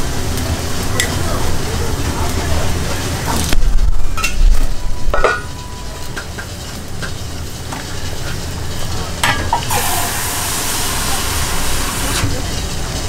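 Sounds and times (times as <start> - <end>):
gas burner rumble: 0.0 - 13.0
broth bubbling in pot: 5.8 - 13.0
hiss: 9.7 - 12.8.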